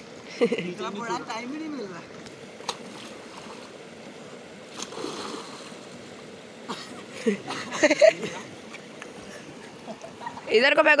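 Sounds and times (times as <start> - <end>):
river water splashing: 0.0 - 11.0.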